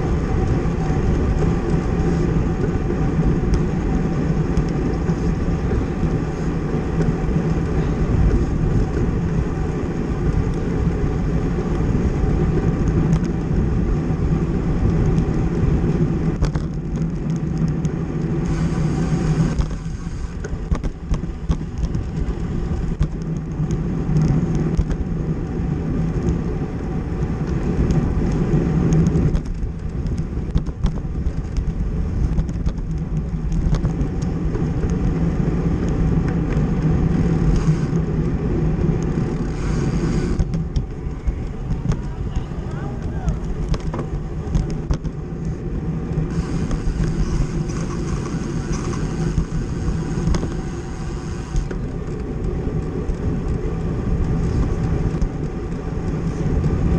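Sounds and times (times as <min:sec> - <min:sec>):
bicycle tyres rolling: 0:00.0 - 0:56.9
wind rushing: 0:36.1 - 0:44.8.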